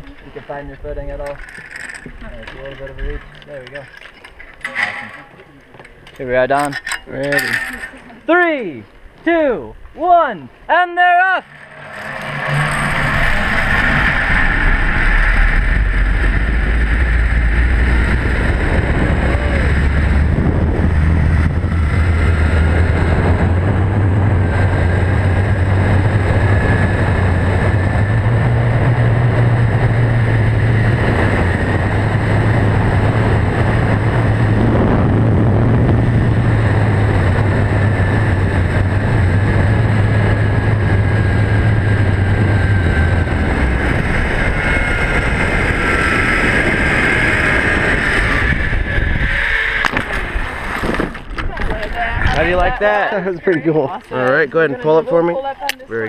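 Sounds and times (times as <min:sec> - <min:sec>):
pulley wheels whirring on cable: 0:01.2 - 0:05.4, 0:06.5 - 0:08.2
wind rushing over microphone: 0:06.2 - 0:56.0.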